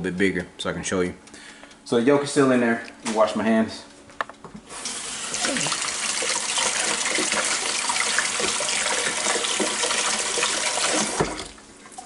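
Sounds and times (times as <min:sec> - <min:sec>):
faucet water running: 0:04.7 - 0:12.0
hands washing under water: 0:04.8 - 0:12.0.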